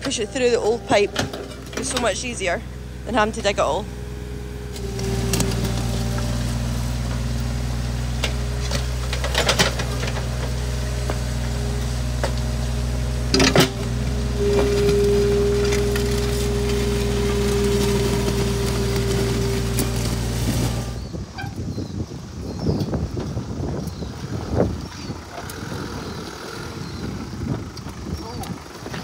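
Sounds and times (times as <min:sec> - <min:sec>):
excavator diesel engine running: 0:00.0 - 0:21.5, 0:23.2 - 0:29.0
hydraulic whine: 0:00.0 - 0:22.0.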